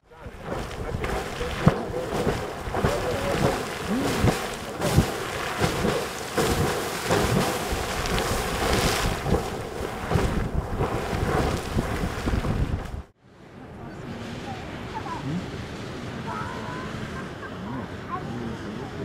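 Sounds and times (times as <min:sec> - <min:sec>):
geyser water splashing: 0:00.1 - 0:13.1
low thumps of surging water: 0:00.1 - 0:13.2.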